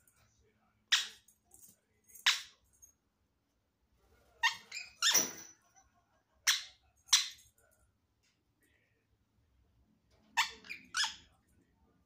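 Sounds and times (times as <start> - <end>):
parakeet squawking: 4.4 - 5.3, 10.4 - 11.3.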